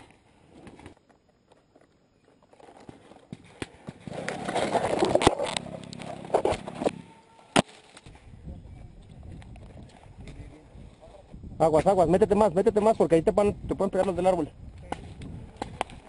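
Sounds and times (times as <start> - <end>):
dry leaves and twigs rustling: 0.9 - 10.5.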